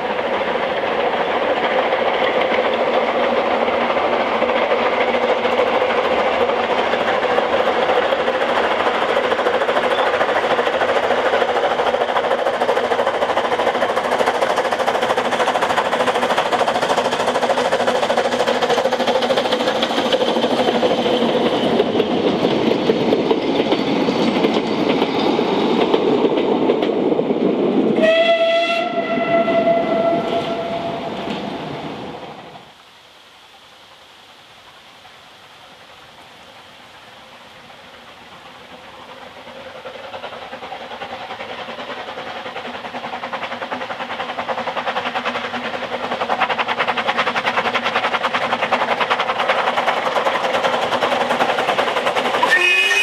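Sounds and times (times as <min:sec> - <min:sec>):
distant steam train rumble: 0:00.0 - 0:53.0
steam train passing: 0:00.0 - 0:53.0
steam whistle: 0:28.0 - 0:31.4, 0:52.4 - 0:53.0.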